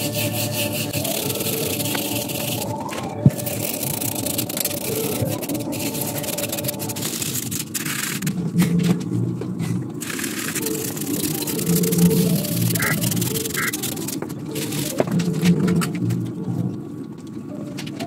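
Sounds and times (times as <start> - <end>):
brush scrubbing dry wood: 0.0 - 8.3, 9.7 - 15.0
low hum: 0.0 - 14.1.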